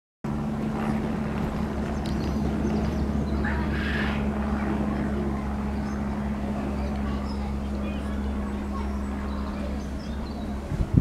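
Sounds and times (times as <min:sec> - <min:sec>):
low mechanical hum: 0:00.3 - 0:11.0
bird calls: 0:01.8 - 0:04.3.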